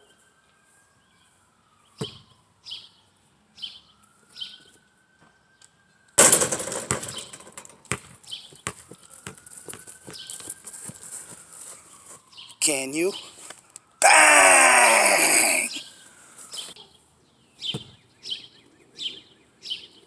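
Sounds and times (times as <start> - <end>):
bird chirps: 1.0 - 4.8
ball bouncing thuds: 2.0 - 2.3, 6.2 - 10.2, 17.7 - 18.0
basketball crashing on hoop: 6.2 - 9.4.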